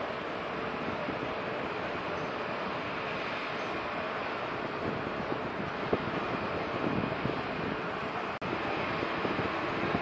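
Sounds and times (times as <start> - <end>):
outdoor background rush: 0.0 - 10.0
wind buffeting microphone: 0.0 - 10.0.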